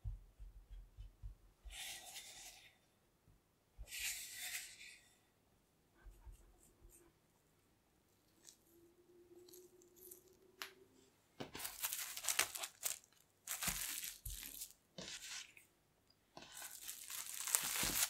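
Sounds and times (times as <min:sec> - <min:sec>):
plastic cling film crinkling: 0:11.6 - 0:15.1, 0:16.4 - 0:18.0.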